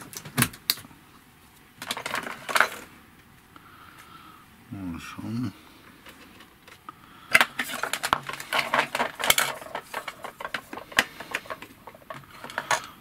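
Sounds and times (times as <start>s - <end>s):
cables and plastic rattling: 0.0s - 3.0s, 5.9s - 13.0s.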